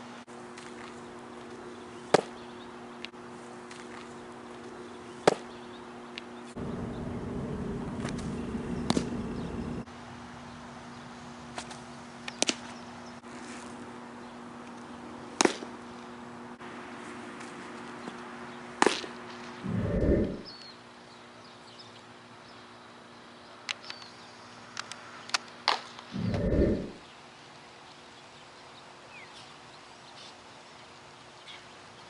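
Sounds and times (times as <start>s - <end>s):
faint steady hum: 0.0s - 9.9s, 19.6s - 20.6s, 26.2s - 27.1s
outdoor noise: 0.0s - 32.0s.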